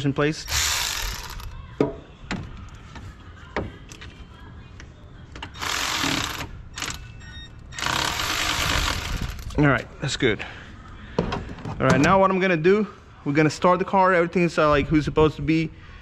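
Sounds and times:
electric ratchet running: 0.5s - 1.5s, 5.6s - 7.0s, 7.8s - 9.5s.

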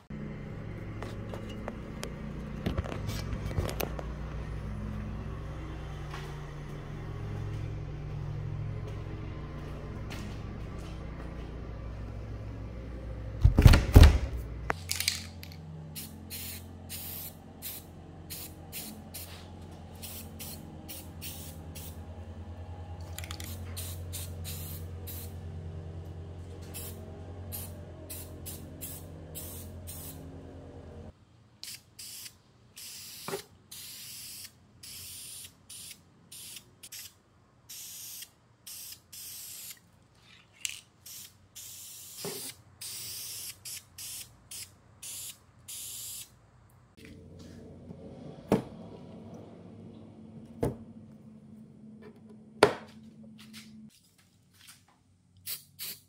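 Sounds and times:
spray can hissing bursts: 16.0s - 19.4s, 20.0s - 22.0s, 23.3s - 25.3s, 26.8s - 30.2s, 31.6s - 39.8s, 41.0s - 46.3s, 55.4s - 56.0s.

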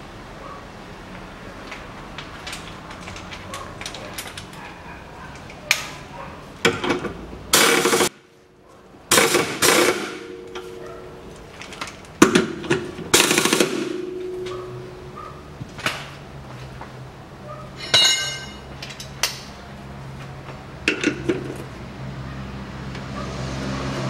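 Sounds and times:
impact wrench rattling: 7.6s - 8.1s, 9.1s - 10.6s, 11.7s - 14.6s.

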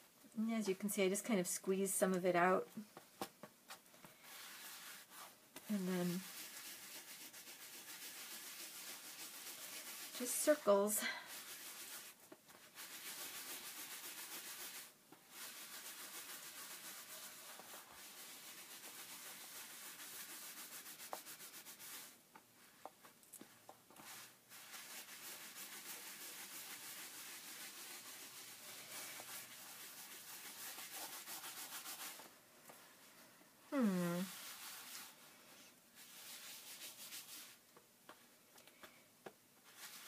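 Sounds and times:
pad scrubbing paper: 4.2s - 32.3s, 34.2s - 35.3s, 39.6s - 40.0s.

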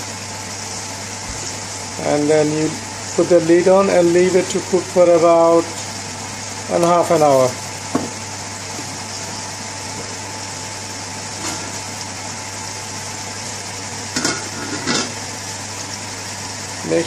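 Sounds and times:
spinach sizzling in a frying pan: 0.0s - 17.0s
metal lid clanking on pan: 14.2s - 15.2s.

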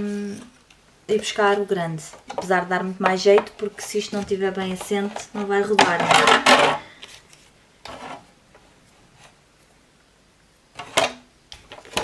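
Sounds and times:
plastic plate scraping plastic: 2.4s - 6.9s, 7.8s - 8.3s.

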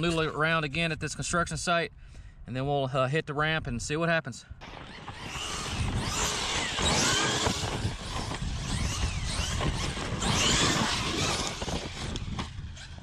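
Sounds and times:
toy truck motor whining: 4.6s - 13.0s.

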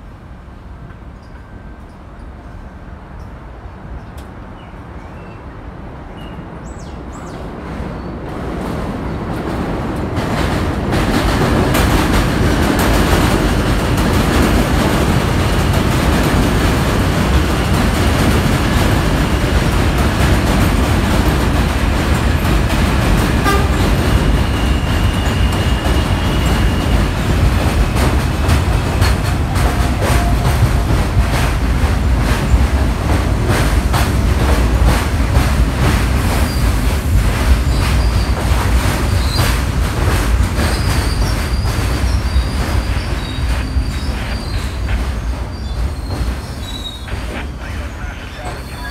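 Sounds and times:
train rumbling past: 0.0s - 48.9s.

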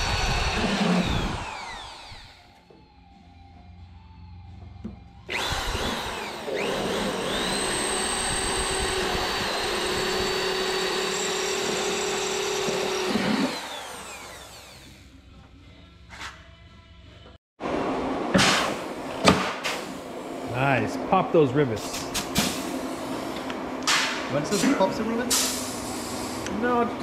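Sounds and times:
electric drill whining: 0.0s - 2.6s, 5.3s - 15.0s.

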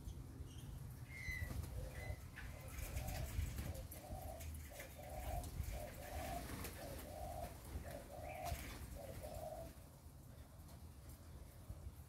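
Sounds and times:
dove cooing: 1.2s - 9.9s.

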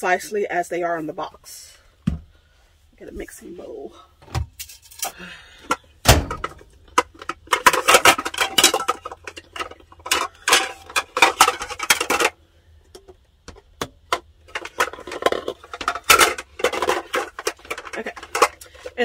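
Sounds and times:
plastic bowls clattering: 5.6s - 19.0s.

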